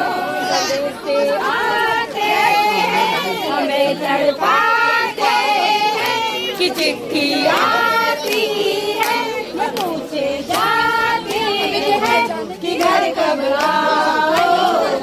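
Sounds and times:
group of people singing: 0:00.0 - 0:15.0
hand claps: 0:05.9 - 0:14.7.

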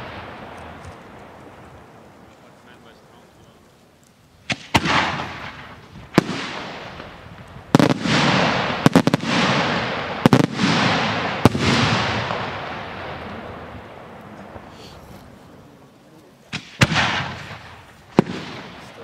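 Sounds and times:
shells bursting with loud bangs: 0:00.0 - 0:02.8, 0:04.4 - 0:14.8, 0:16.5 - 0:19.0
rolling echo: 0:00.0 - 0:19.0.

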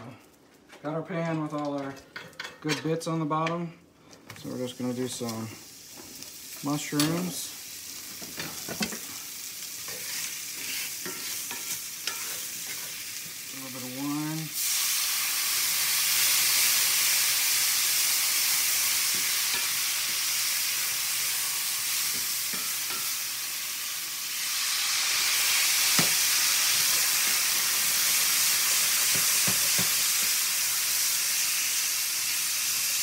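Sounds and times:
mushrooms sizzling in a skillet: 0:04.4 - 0:33.0
wooden spatula scraping pan: 0:09.9 - 0:13.0.

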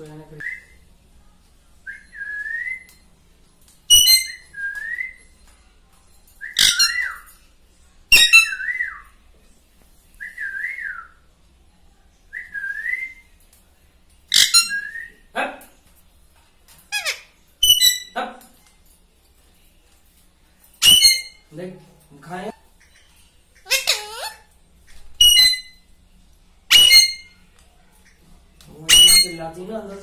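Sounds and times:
parakeet whistling: 0:03.9 - 0:05.1, 0:06.4 - 0:07.3, 0:08.1 - 0:09.0, 0:14.3 - 0:15.2, 0:17.0 - 0:18.2, 0:20.8 - 0:21.4, 0:25.2 - 0:25.8, 0:26.7 - 0:27.4, 0:28.9 - 0:29.4
parakeet harsh screeches: 0:06.6 - 0:07.2, 0:14.3 - 0:14.9, 0:16.9 - 0:18.2, 0:20.8 - 0:21.4, 0:23.6 - 0:24.5, 0:25.2 - 0:25.8, 0:26.7 - 0:27.4, 0:28.9 - 0:29.4.

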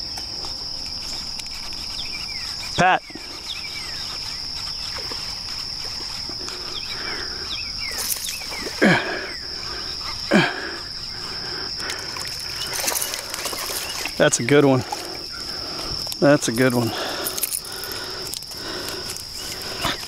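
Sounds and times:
high-pitched insect buzz: 0:00.0 - 0:20.0
faint bird chirps: 0:01.0 - 0:11.6.

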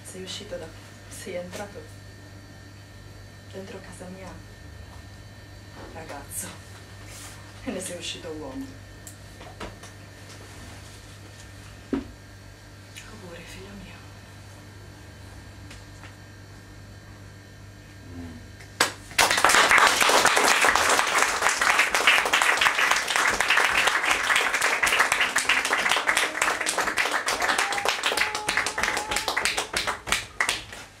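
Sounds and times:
faint electrical hum: 0:00.0 - 0:31.0
audience applauding: 0:18.8 - 0:31.0.

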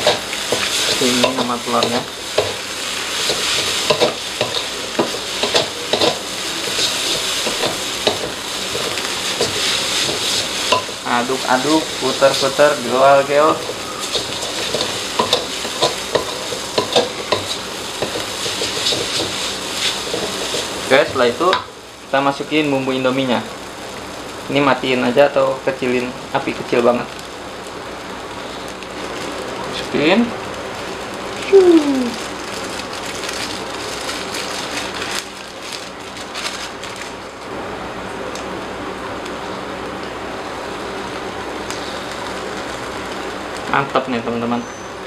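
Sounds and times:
spatula scraping a wok: 0:00.0 - 0:11.0, 0:13.3 - 0:20.9
foil sachets crinkling: 0:00.0 - 0:21.4, 0:31.3 - 0:37.4
crackles: 0:00.0 - 0:45.0
food sizzling: 0:00.0 - 0:45.0.

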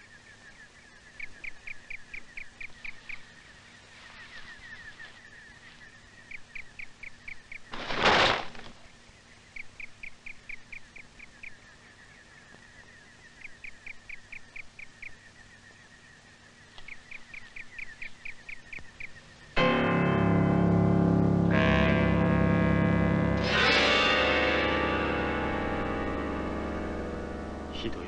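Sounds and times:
faint chirping: 0:00.0 - 0:07.9, 0:08.6 - 0:19.6
organ-like keyboard music: 0:16.9 - 0:28.0.

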